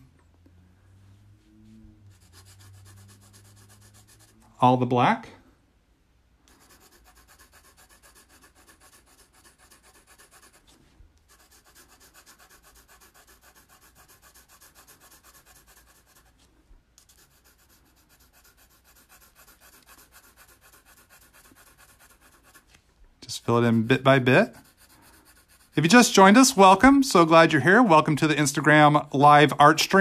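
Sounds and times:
pencil scratching on paper: 0:01.7 - 0:04.4, 0:06.5 - 0:22.8, 0:23.4 - 0:26.8.

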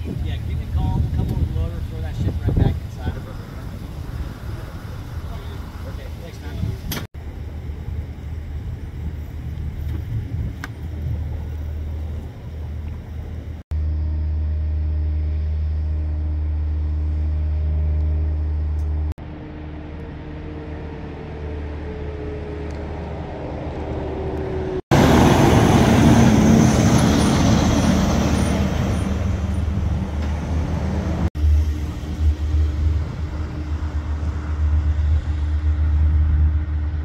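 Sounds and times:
low engine rumble: 0:00.0 - 0:37.0
truck diesel engine driving: 0:10.3 - 0:37.0.

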